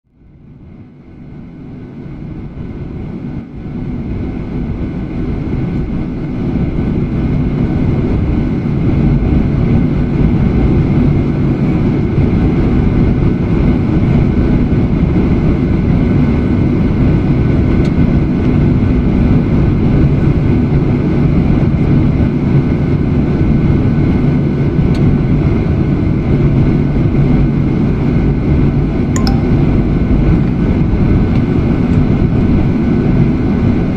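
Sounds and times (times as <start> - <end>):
jet engine drone in cabin: 0.1 - 21.9.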